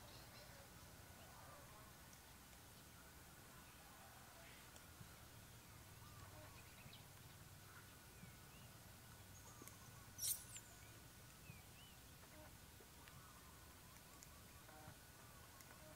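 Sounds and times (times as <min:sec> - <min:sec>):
faint animal chirps: 0:09.4 - 0:10.9
sharp squeak: 0:10.2 - 0:10.7.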